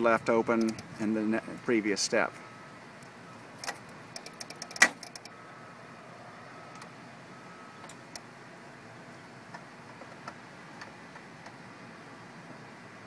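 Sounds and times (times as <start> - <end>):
screwdriver metal clicks: 3.6 - 5.3.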